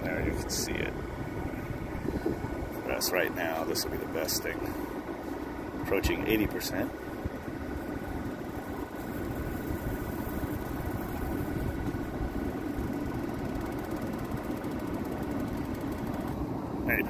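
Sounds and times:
faint steady whine: 0.0 - 17.0
low machine hum: 0.0 - 17.0.

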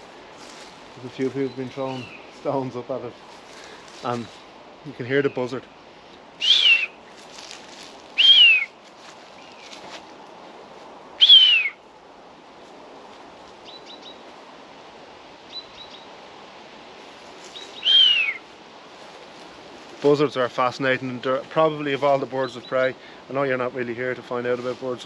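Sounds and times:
buzzard crying: 11.2 - 11.8, 17.8 - 18.4.

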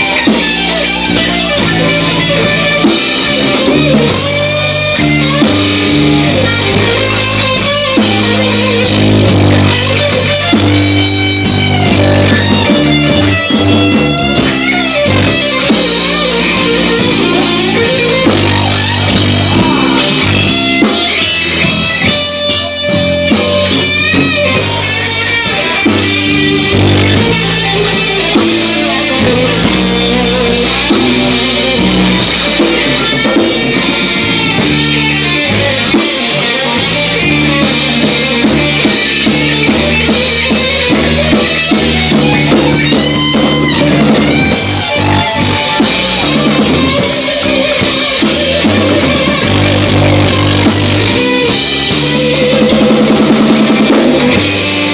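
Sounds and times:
rock band playing: 0.0 - 54.9.

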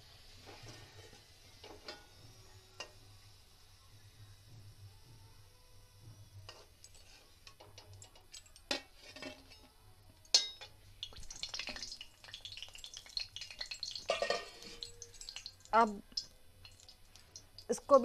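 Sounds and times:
steel spoon clanking against pan: 1.6 - 2.2, 10.3 - 18.0.

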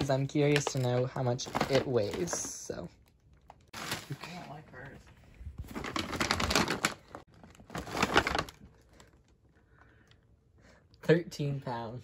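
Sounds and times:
paper bag rustling: 3.7 - 4.6, 5.6 - 9.2.

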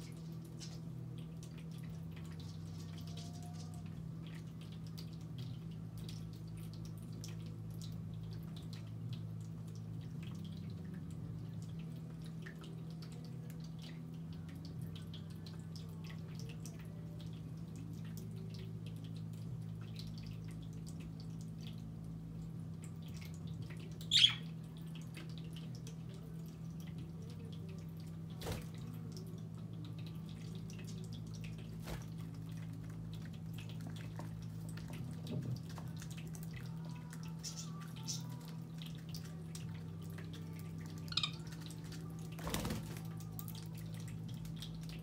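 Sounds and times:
low pump hum: 0.0 - 45.0
water trickling from fountain: 0.0 - 45.0
budgerigar chirps: 24.1 - 24.5.

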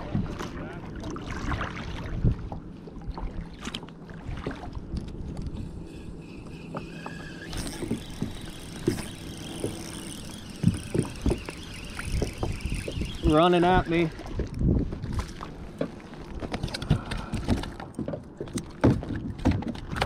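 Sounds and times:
wind and water rumble: 0.0 - 20.0
gear knocking against kayak: 15.7 - 20.0.

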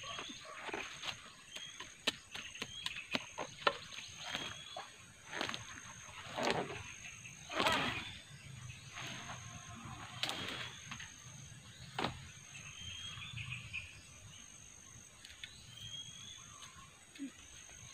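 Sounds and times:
leaves and stalks rustling: 4.0 - 12.4.

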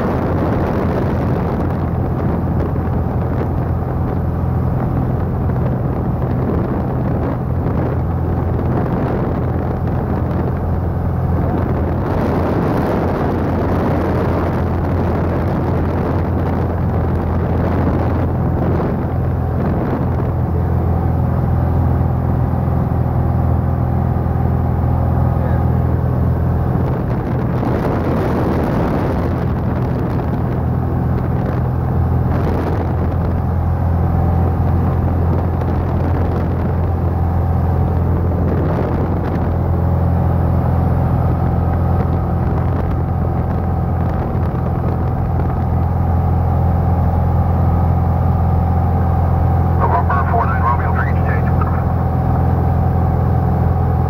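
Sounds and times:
rushing airflow: 0.0 - 20.6
airplane engine and propeller droning: 0.0 - 54.0.

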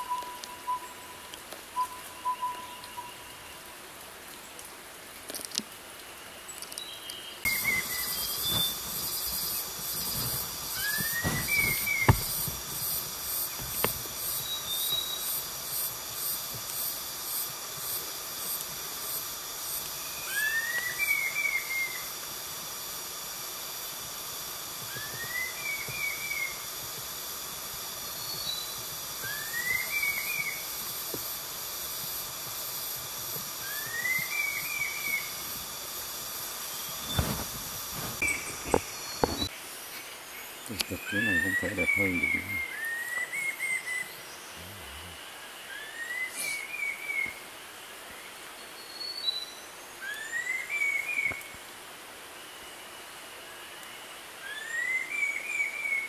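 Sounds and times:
bird whistling song: 0.0 - 3.4, 7.5 - 12.4, 24.9 - 26.6, 28.2 - 30.6, 33.6 - 35.3
high-pitched hiss: 0.0 - 56.0.

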